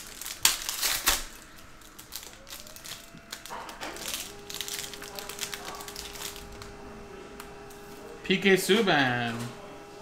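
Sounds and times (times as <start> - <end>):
foil wrapper crinkling and ripping: 0.0 - 6.7.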